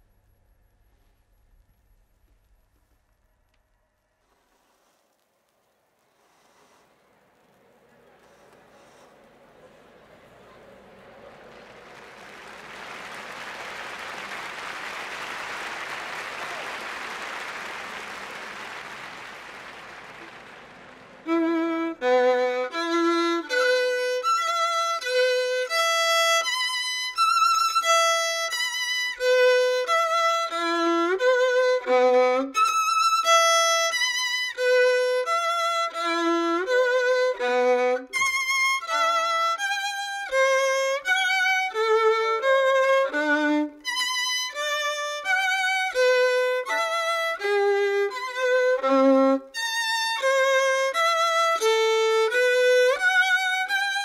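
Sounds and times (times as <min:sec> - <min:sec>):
solo violin melody: 0:20.2 - 0:54.0.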